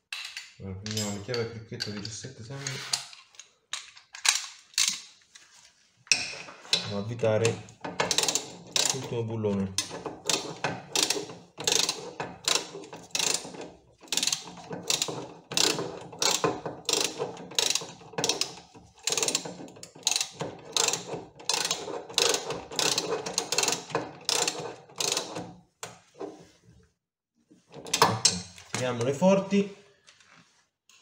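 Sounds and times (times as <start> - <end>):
ratchet wrench clicking: 8.0 - 9.1, 9.8 - 13.5, 14.1 - 25.4.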